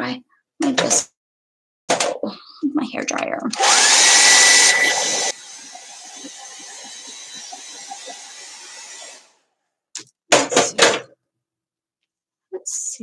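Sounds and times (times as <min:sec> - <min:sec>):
hair dryer blowing: 0:03.6 - 0:09.4.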